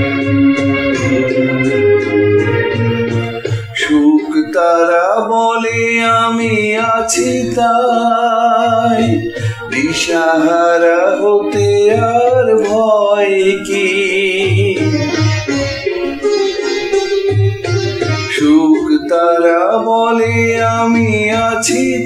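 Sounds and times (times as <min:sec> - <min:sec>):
instrumental backing with bass: 0:00.0 - 0:22.0
man singing: 0:03.4 - 0:15.5, 0:18.2 - 0:22.0.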